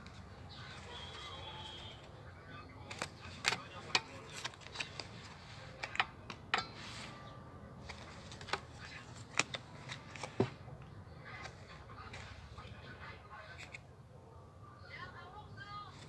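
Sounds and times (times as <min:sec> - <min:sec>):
cards rustling: 0:00.0 - 0:02.2, 0:02.8 - 0:13.8
cards snapping and tapping: 0:02.9 - 0:05.2, 0:07.8 - 0:10.6.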